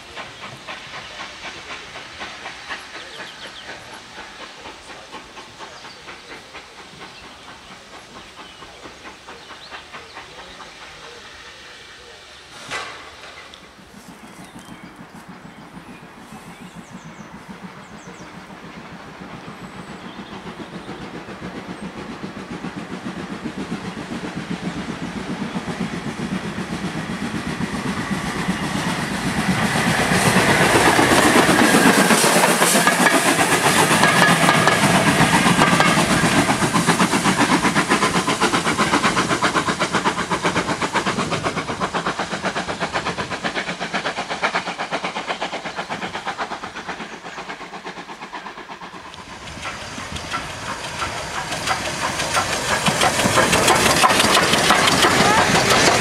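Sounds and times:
steam locomotive passing: 0.0s - 56.0s
wheels clattering on rails: 20.9s - 56.0s.

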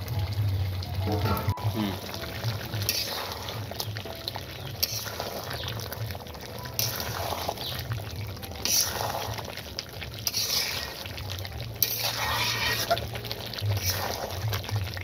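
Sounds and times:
curry sizzling and bubbling in a wok: 0.0s - 15.0s
metal spatula scraping a pan: 2.8s - 3.6s, 4.8s - 5.6s, 6.7s - 7.9s, 8.5s - 9.5s, 10.1s - 14.7s.

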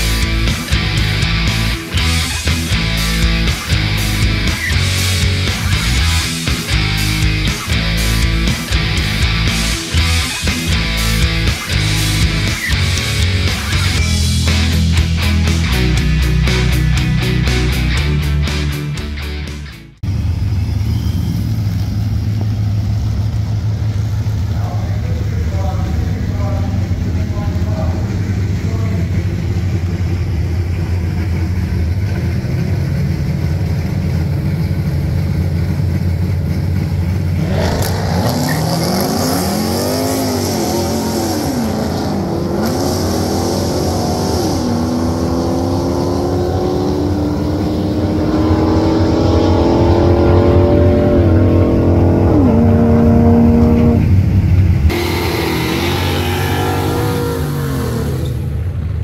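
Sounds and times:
pickup engine revving through gears: 37.0s - 58.9s.

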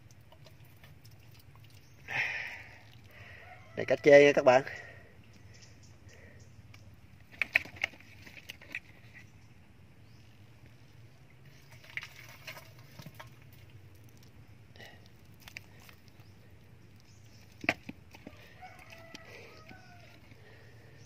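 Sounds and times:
rooster crowing: 3.2s - 4.5s, 18.3s - 20.3s.

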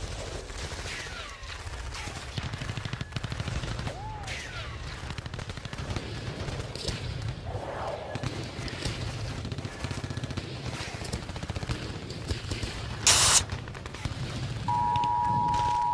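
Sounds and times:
machine-gun fire: 8.2s - 14.7s.

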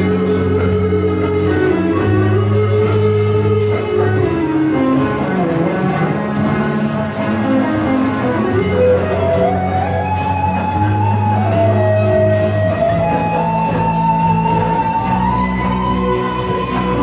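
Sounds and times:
electronic drum beat: 0.0s - 17.0s
guitars playing: 0.0s - 17.0s
sliding lead melody: 0.0s - 17.0s.

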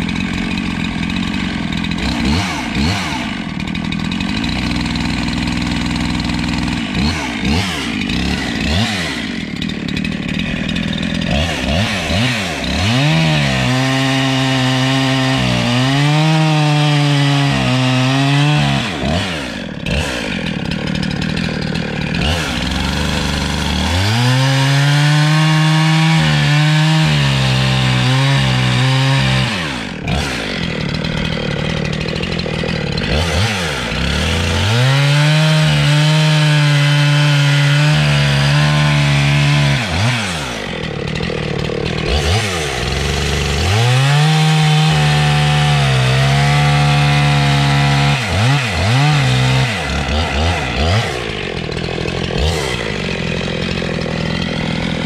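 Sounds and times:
chainsaw cutting log: 0.0s - 55.0s.

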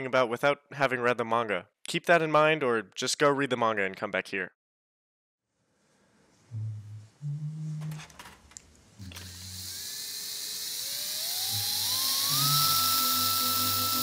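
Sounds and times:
low hum: 6.3s - 9.8s
drill whine: 9.0s - 14.0s.

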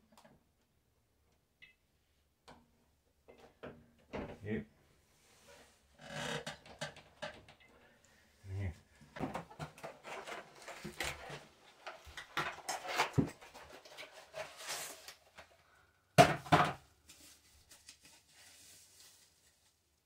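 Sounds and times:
paper and cardboard rustling: 9.2s - 15.6s, 17.0s - 19.8s.

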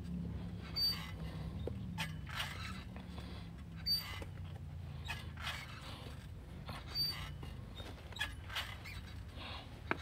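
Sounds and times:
low steady hum: 0.0s - 10.0s
man breathing hard: 0.2s - 2.0s, 3.0s - 3.8s, 9.2s - 10.0s.

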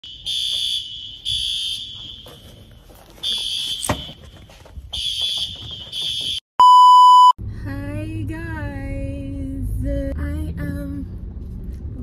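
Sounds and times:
fire alarm pulsing tone: 0.0s - 2.6s.

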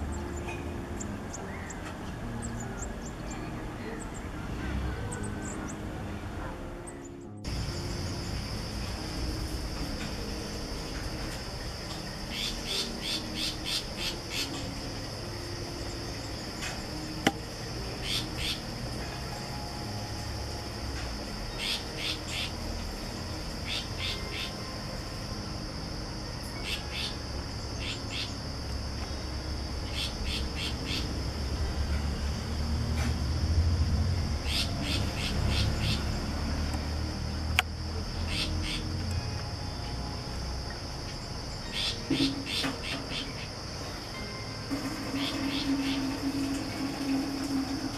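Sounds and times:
high insect drone: 0.0s - 47.9s.

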